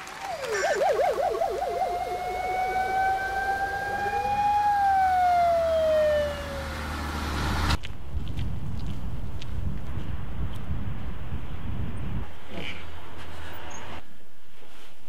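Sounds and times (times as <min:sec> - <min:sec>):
police siren wailing: 0:00.0 - 0:07.8
low engine rumble: 0:00.0 - 0:14.1.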